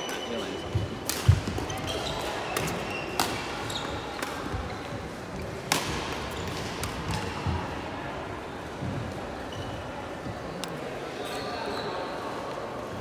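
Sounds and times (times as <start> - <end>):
shoe squeaks: 0.0 - 4.1, 9.5 - 9.9
echoing hall background: 0.0 - 13.0.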